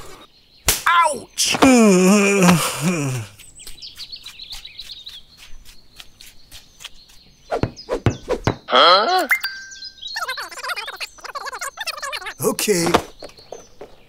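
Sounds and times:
faint high bird-like chirping: 3.3s - 14.0s.

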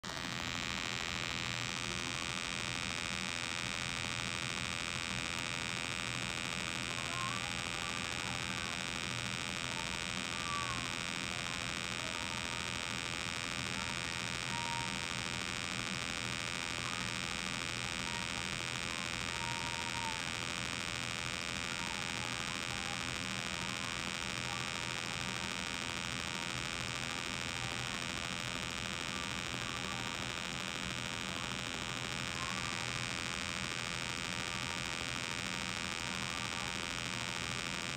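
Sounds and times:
synthesized buzzing hum: 0.0s - 37.9s.

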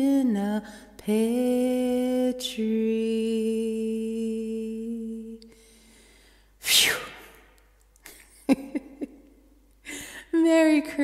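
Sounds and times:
woman singing: 0.0s - 5.5s, 10.3s - 11.0s.

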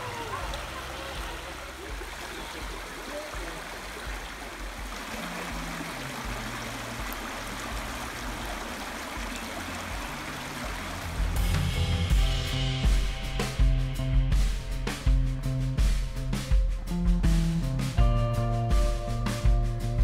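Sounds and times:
creek water gurgling over rocks: 0.0s - 11.7s.

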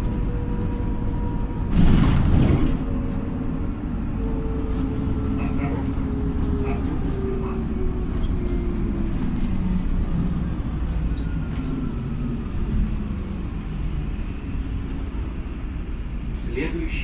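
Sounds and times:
bus engine droning: 0.0s - 17.0s
road rumble: 0.0s - 17.0s.

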